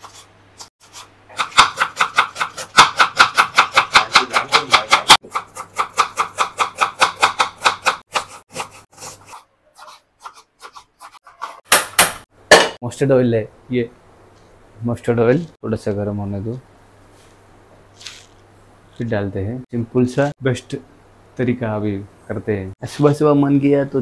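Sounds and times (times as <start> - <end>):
knife chopping on wooden board: 1.4 - 9.1, 9.8 - 12.8.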